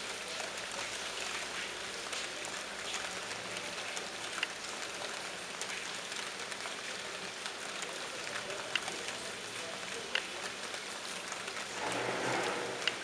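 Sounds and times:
rain splashing into water: 0.0s - 13.0s.

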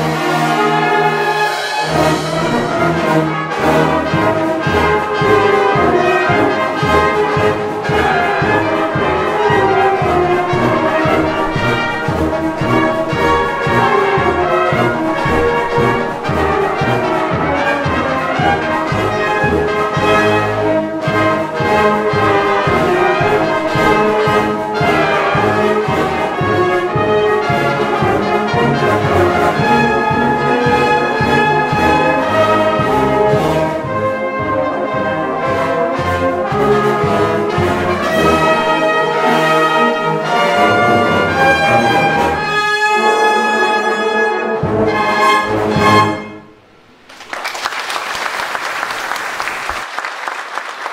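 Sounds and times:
brass band playing: 0.0s - 47.3s
audience applause: 8.0s - 17.9s, 46.9s - 50.9s.

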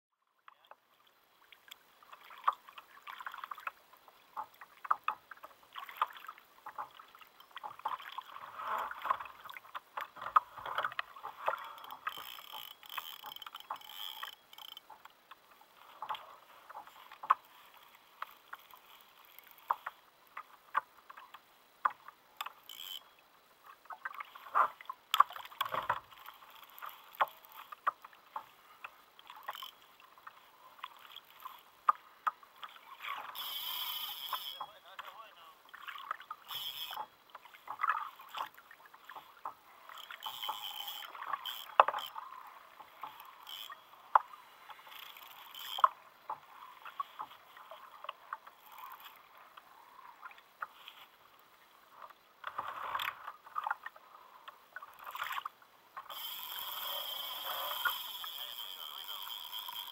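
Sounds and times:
water lapping around kayak: 0.1s - 59.9s.

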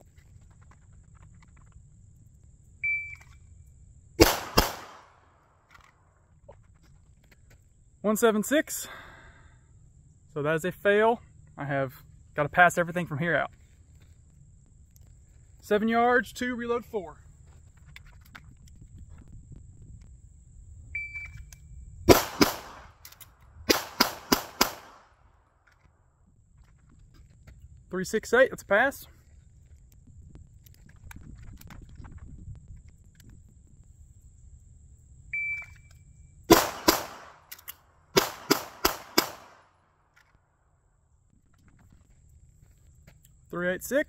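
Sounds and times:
pistol shots: 4.2s - 5.2s, 22.1s - 23.0s, 23.7s - 25.1s, 36.5s - 39.7s
shot timer beep: 21.0s - 21.4s.

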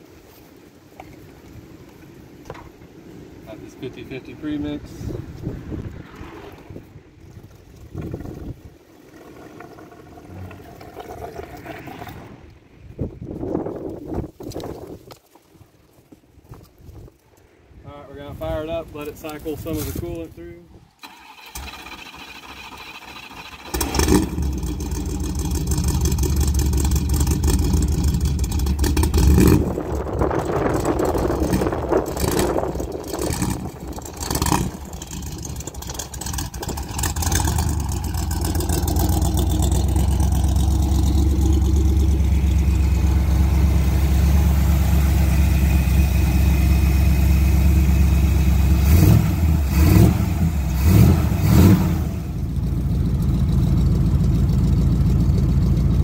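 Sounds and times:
car engine starting and idling: 21.0s - 56.0s.

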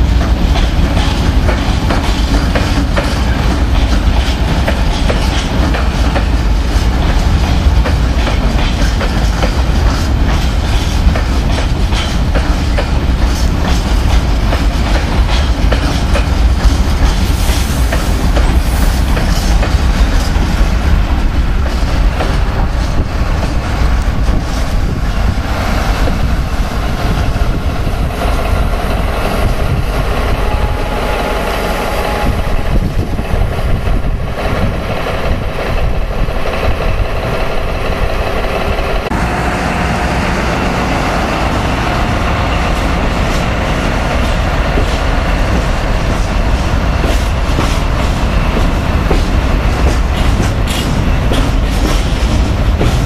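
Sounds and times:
train wheels clacking over rail joints: 0.0s - 39.2s, 41.8s - 53.0s
diesel locomotive engine: 0.0s - 53.0s.

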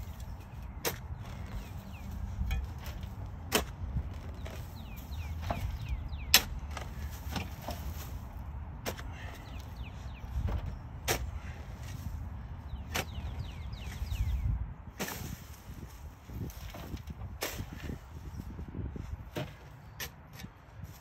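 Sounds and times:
shovel striking soil: 0.0s - 8.2s, 10.4s - 12.1s, 12.8s - 14.1s, 15.0s - 15.6s, 16.6s - 18.0s.

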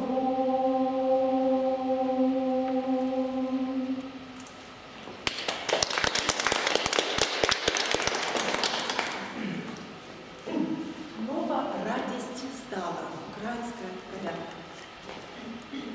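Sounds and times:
women's choir holding a chord: 0.0s - 4.4s
audience applause: 5.2s - 9.3s.

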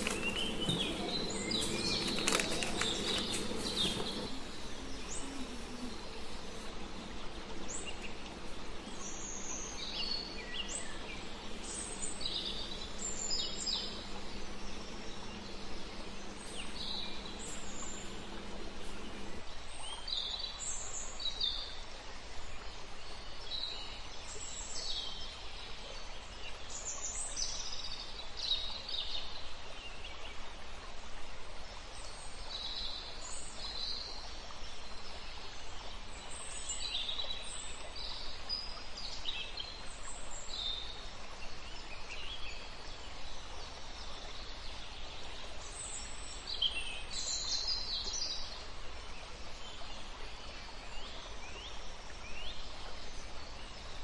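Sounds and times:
birds chirping: 0.0s - 19.4s
low hum: 0.0s - 19.4s.

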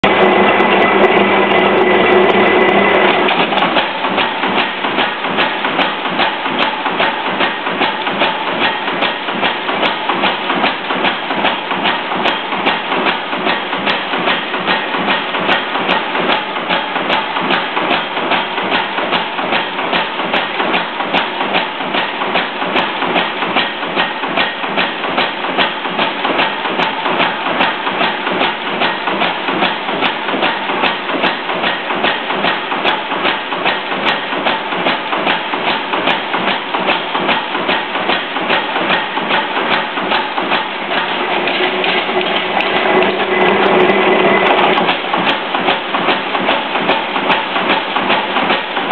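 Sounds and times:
power hammer striking steel: 23.5s - 48.9s.

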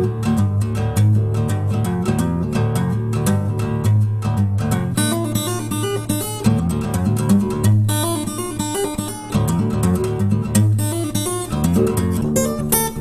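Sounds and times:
acoustic guitar: 0.0s - 13.0s.

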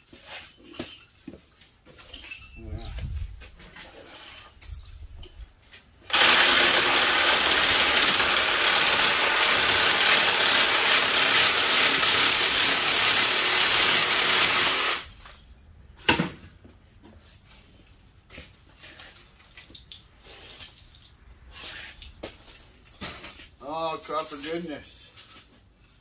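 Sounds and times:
power tool grinding metal: 6.1s - 15.2s.

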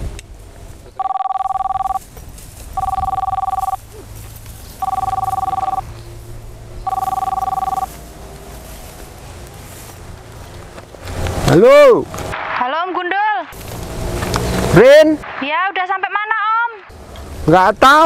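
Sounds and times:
phone ringing two-tone: 1.0s - 2.0s, 2.8s - 3.8s, 4.8s - 5.8s, 6.9s - 7.9s.

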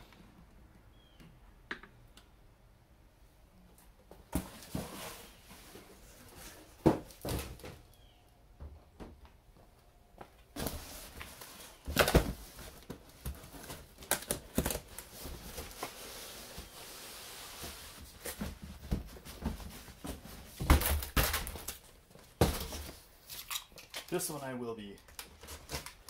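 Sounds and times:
cardboard boxes scraping and rustling: 4.4s - 7.8s, 10.6s - 21.7s.

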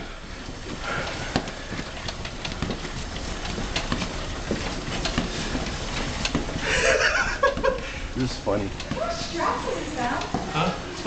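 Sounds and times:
footsteps: 0.0s - 11.0s
motorcycle rolling on concrete: 0.2s - 11.0s.

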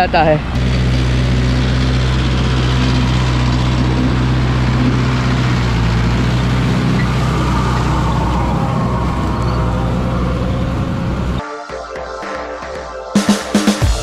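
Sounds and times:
tractor diesel engine running: 0.0s - 11.4s
rotary tiller churning: 0.6s - 11.4s.

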